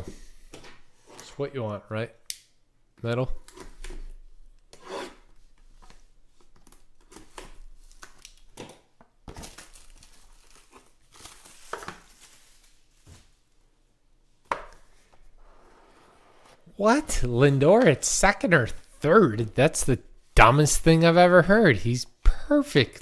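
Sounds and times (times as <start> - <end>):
plastic film crinkling: 9.3 - 13.4.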